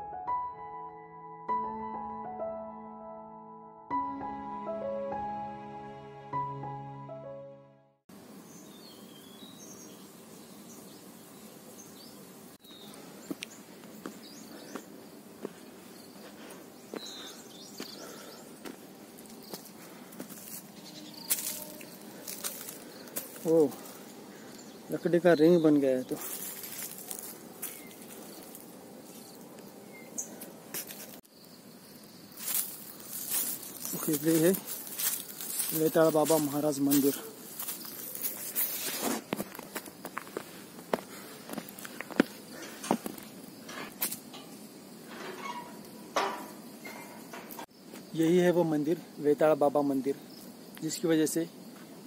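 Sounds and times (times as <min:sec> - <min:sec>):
outdoor background noise: 0:08.1 - 0:52.0
footsteps on stones and gravel: 0:13.0 - 0:24.8, 0:25.6 - 0:29.7, 0:30.4 - 0:31.2, 0:32.4 - 0:44.5
bird chirps: 0:16.0 - 0:18.6, 0:27.7 - 0:28.5, 0:29.1 - 0:30.4.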